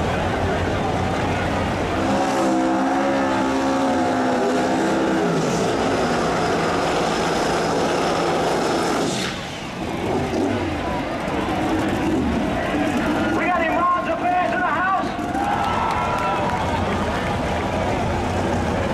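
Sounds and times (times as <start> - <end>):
car engine at high revs: 0.3 - 14.5.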